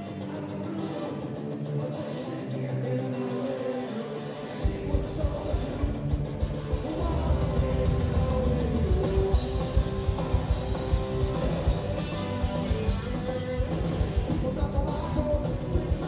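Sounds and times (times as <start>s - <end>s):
person singing: 0.0s - 6.1s, 6.8s - 9.6s, 14.2s - 16.0s
electric guitar: 0.0s - 16.0s
drums and bass fast beat: 4.6s - 16.0s.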